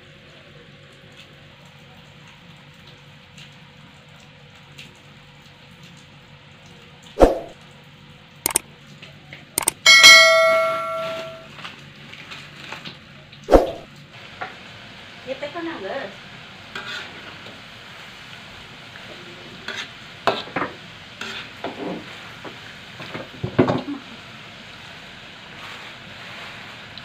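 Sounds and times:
potatoes sizzling in oil: 0:14.0 - 0:27.0.

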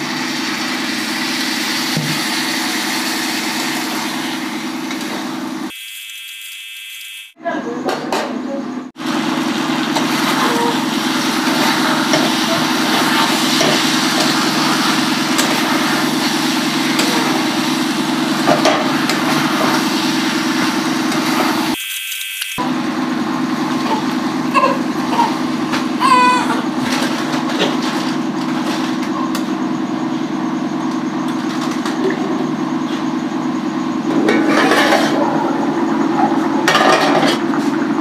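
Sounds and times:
curry sizzling in a pan: 0:09.0 - 0:21.8.

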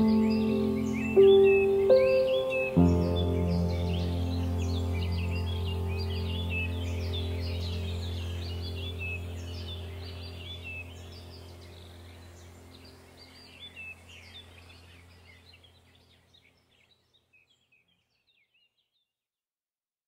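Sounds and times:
low steady drone: 0:00.0 - 0:15.8
birds chirping: 0:00.0 - 0:19.0.

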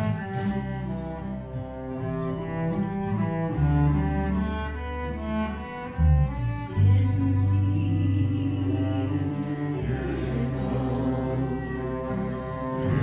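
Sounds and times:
cello slow melody: 0:00.0 - 0:13.0
electric bass low notes: 0:00.0 - 0:13.0.

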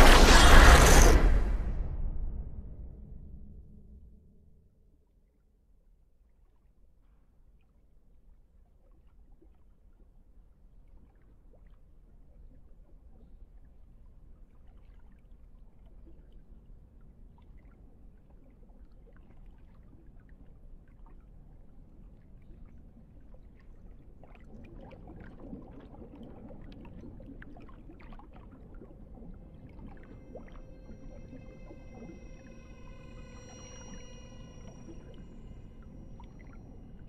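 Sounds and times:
low rumble: 0:00.0 - 0:05.0, 0:28.4 - 0:37.0
water trickling and sloshing: 0:06.0 - 0:37.0
water drips and splashes: 0:07.6 - 0:37.0.

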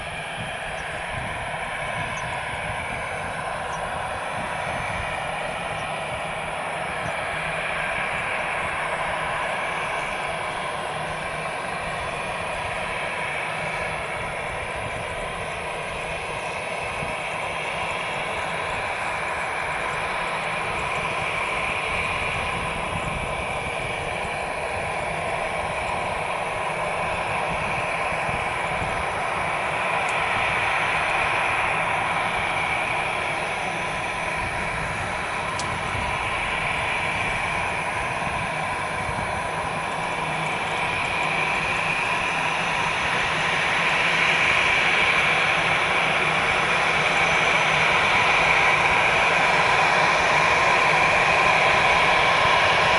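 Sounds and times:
jet engines whining: 0:00.0 - 0:52.9.

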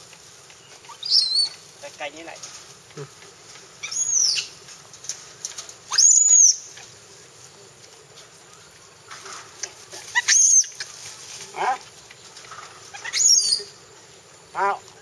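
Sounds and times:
lower monkey call: 0:00.9 - 0:01.6, 0:12.9 - 0:13.8
monkeys shrieking: 0:10.0 - 0:10.9, 0:12.9 - 0:13.8.

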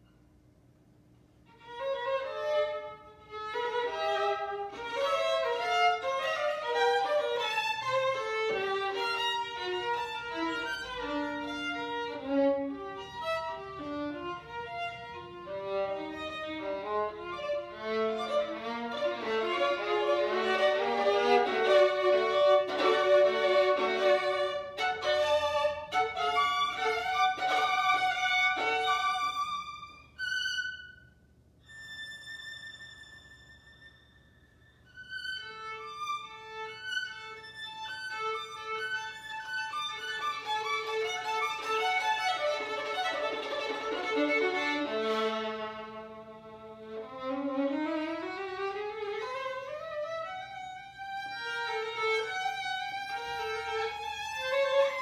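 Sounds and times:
violin playing quick runs: 0:01.8 - 0:31.0, 0:34.9 - 0:46.2.

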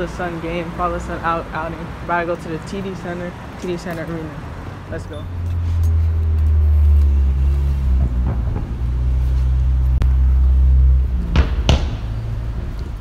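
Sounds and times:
vehicle engine running: 0:05.1 - 0:13.0.

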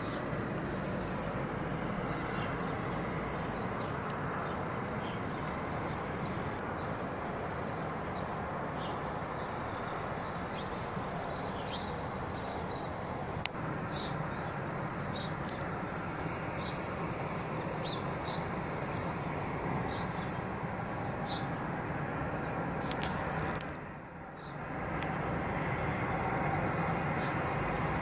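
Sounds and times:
small birds chirping: 0:00.0 - 0:23.8, 0:24.4 - 0:24.6.

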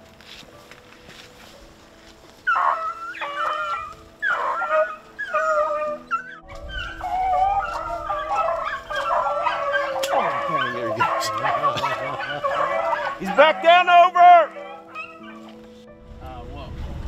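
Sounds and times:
hounds baying: 0:02.4 - 0:15.8.

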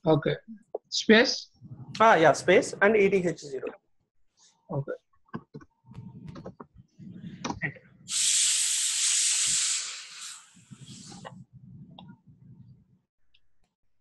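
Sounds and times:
loud steady hiss: 0:08.1 - 0:11.3.

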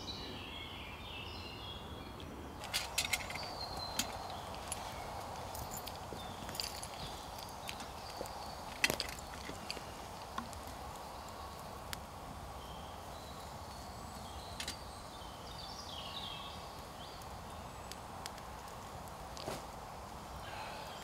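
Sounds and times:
quiet hiss of woodland air: 0:00.0 - 0:21.0
wood fire crackling: 0:02.4 - 0:21.0
fire pops: 0:02.6 - 0:12.4, 0:13.1 - 0:14.9, 0:16.7 - 0:20.4.

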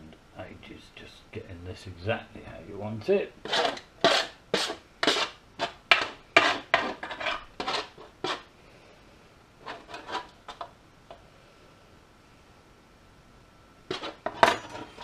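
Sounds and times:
metal utensil scraping metal tray: 0:03.4 - 0:08.5, 0:09.6 - 0:10.4, 0:13.9 - 0:15.0.

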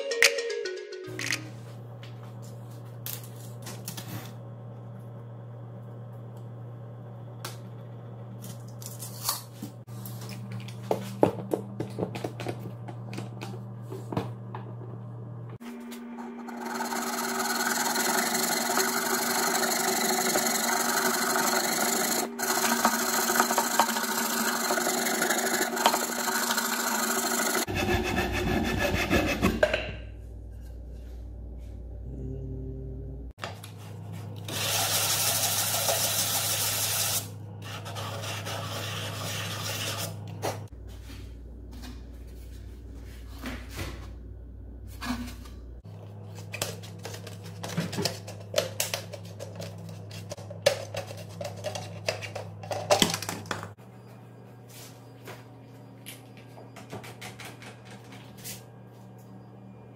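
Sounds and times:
hand saw cutting wood: 0:16.3 - 0:29.6.

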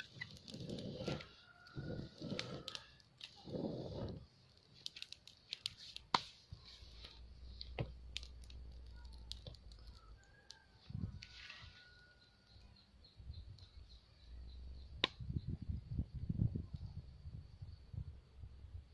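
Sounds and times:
straw and twigs rustling: 0:00.0 - 0:12.0
burning twigs crackling: 0:00.0 - 0:12.8.

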